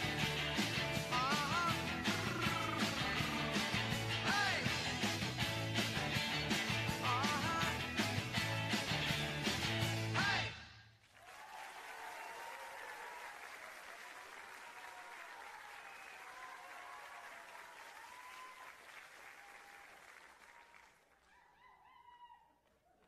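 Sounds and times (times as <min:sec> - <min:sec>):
voices calling out: 0:01.2 - 0:04.7
audience applauding: 0:11.0 - 0:21.7.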